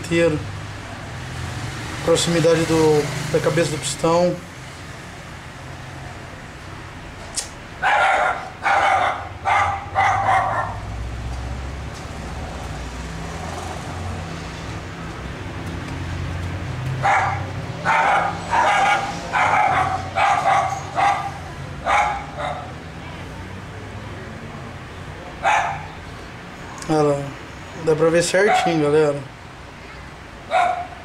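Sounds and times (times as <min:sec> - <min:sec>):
dog barking: 0:07.8 - 0:10.9, 0:17.0 - 0:22.8, 0:25.4 - 0:26.0, 0:28.4 - 0:28.8, 0:30.5 - 0:31.0.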